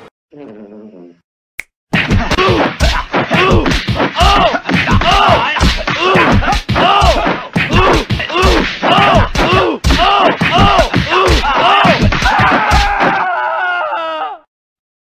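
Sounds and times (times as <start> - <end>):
rapid repeated thumps: 1.9 - 13.2.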